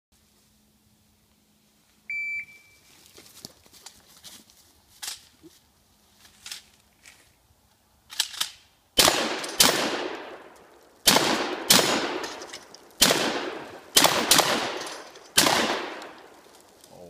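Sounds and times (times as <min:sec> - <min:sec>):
gunshot echo: 0:09.0 - 0:10.5, 0:11.1 - 0:16.3
shotgun firing: 0:09.0 - 0:16.3.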